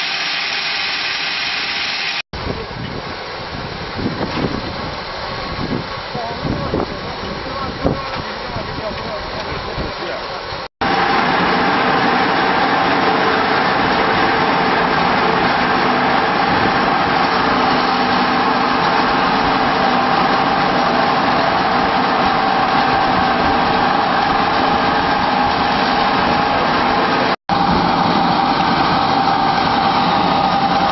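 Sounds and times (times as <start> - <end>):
pellet mill machine humming: 10.8 - 30.9.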